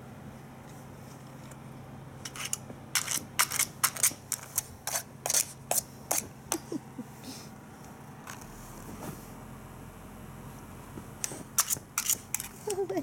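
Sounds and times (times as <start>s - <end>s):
clicks and scrapes on hard plastic: 2.3s - 6.3s, 11.2s - 12.8s.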